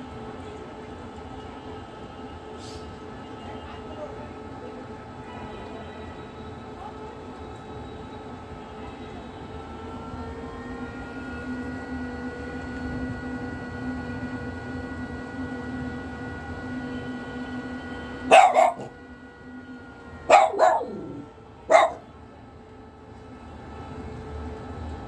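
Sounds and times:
droning hum: 9.9s - 25.0s
dog barking: 18.3s - 18.9s, 20.3s - 22.1s.

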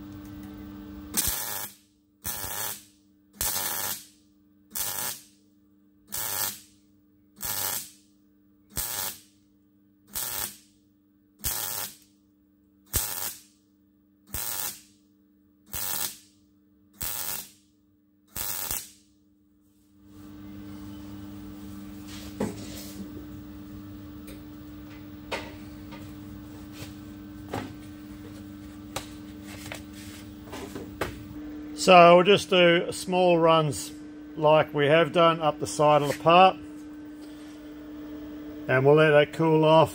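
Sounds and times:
welder arc bursts: 1.1s - 5.4s, 6.1s - 6.8s, 7.4s - 8.1s, 8.7s - 9.4s, 10.1s - 10.8s, 11.4s - 12.1s, 12.9s - 13.6s, 14.3s - 15.0s, 15.7s - 16.3s, 17.0s - 17.6s, 18.3s - 19.1s.

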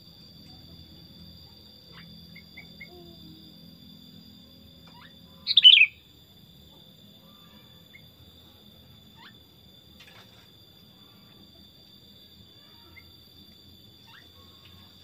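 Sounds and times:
bird chirping: 4.8s - 6.0s.

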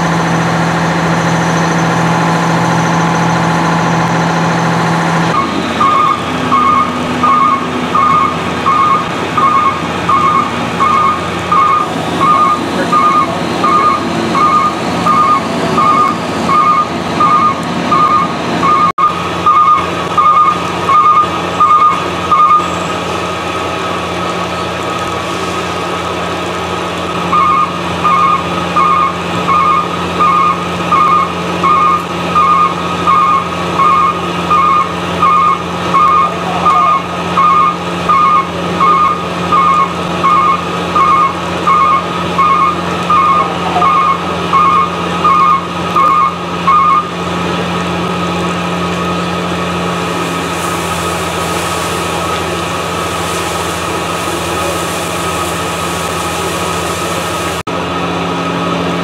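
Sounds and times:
truck reversing alarm beeping: 0.0s - 57.6s
engine humming: 0.0s - 59.0s.

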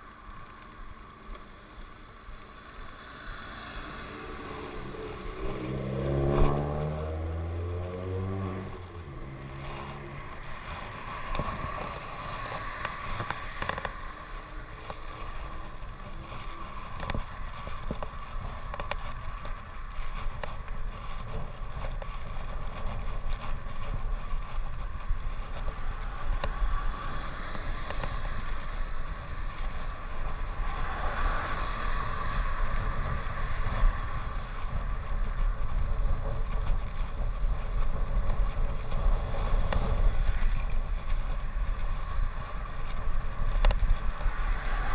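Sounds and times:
road traffic passing: 0.0s - 44.9s
wind rumble on microphone: 0.0s - 44.9s.

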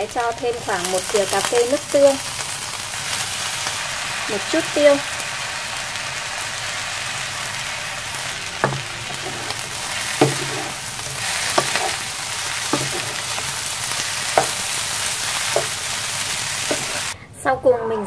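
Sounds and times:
rice sizzling in a pan: 0.0s - 17.2s
spatula knocking and scraping pan: 7.4s - 17.2s.

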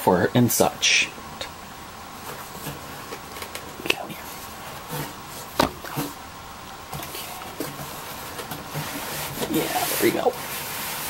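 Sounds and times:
cardboard and foam rustling: 2.2s - 6.2s, 6.9s - 11.0s
sharp knocks: 5.5s - 6.1s.

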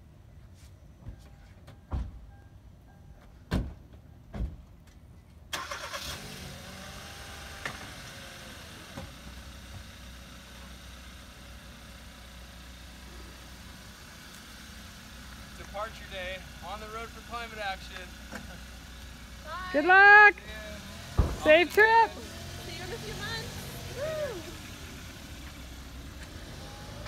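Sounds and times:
car engine starting and idling: 5.5s - 27.0s
car door thumps: 21.1s - 21.5s.

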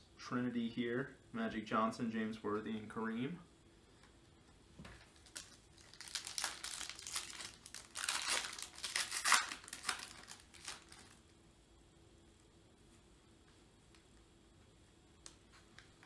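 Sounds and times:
wrapper being torn and crinkled: 5.2s - 11.2s.

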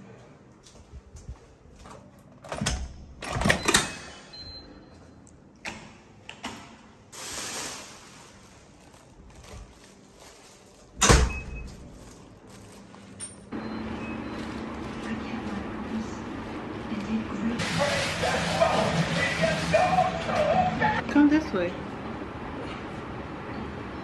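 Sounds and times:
door lock beep: 3.4s - 4.8s.

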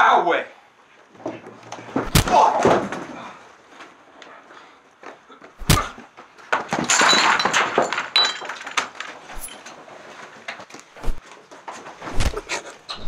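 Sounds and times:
crash with breaking and clinking: 5.7s - 9.8s.

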